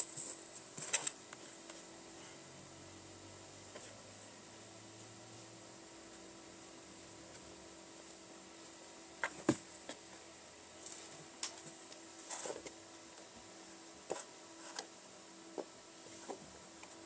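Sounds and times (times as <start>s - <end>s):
faint steady hum: 0.0s - 17.0s
kittens' paws thumping and scuffling: 9.2s - 10.2s.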